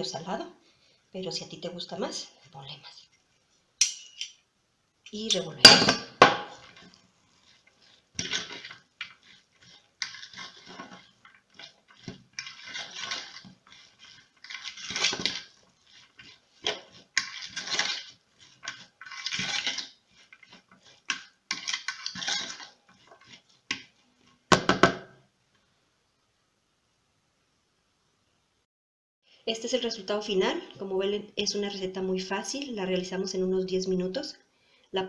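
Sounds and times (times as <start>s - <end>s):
fork scraping in plastic bowl: 6.4s - 24.9s
knock: 24.5s - 25.1s.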